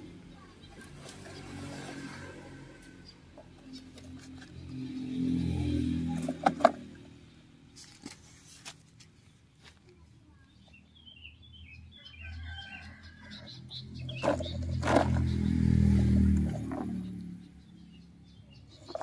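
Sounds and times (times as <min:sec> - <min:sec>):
small bird chirping: 0:10.3 - 0:19.0.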